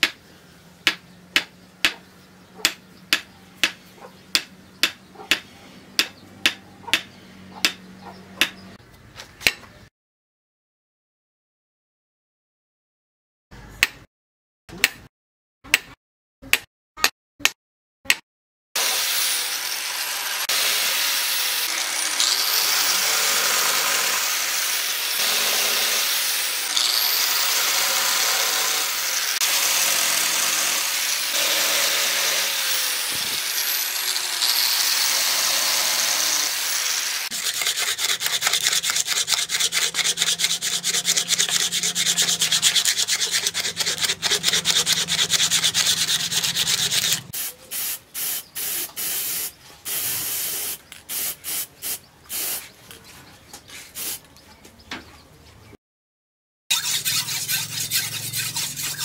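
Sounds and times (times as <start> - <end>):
angle grinder sanding wood: 18.8 - 47.4, 56.7 - 59.0
aerosol spray can hissing: 47.4 - 52.6, 54.0 - 54.2.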